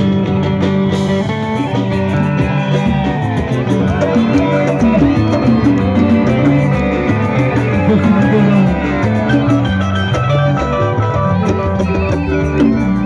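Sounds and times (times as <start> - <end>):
plucked guitar music with beat: 0.0 - 13.0.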